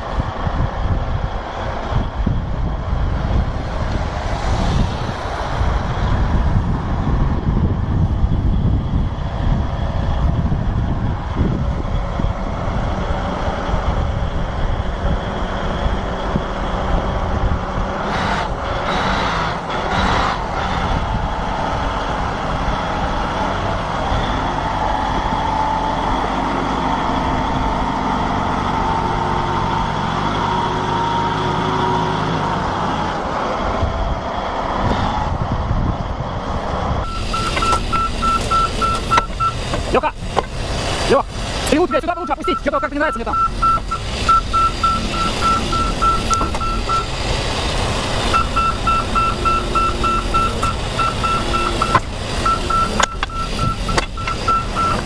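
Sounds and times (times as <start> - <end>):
diesel engine under load: 0.0 - 55.0
engine running: 0.0 - 55.0
fast beeps: 37.1 - 39.6, 42.1 - 47.1, 48.4 - 55.0.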